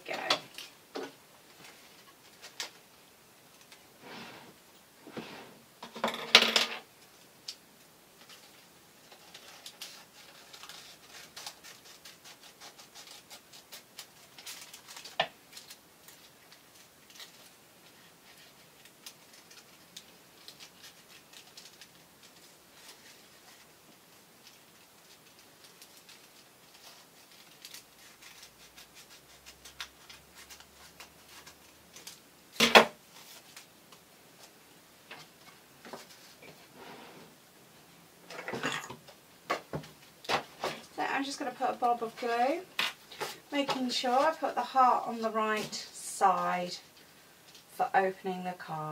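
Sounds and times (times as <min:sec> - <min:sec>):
scissors snipping paper: 0:09.1 - 0:15.1, 0:25.6 - 0:32.1.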